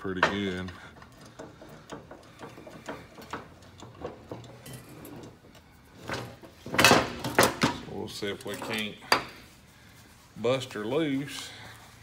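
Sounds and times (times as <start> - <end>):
wrench clicking and knocking: 0.0 - 5.4.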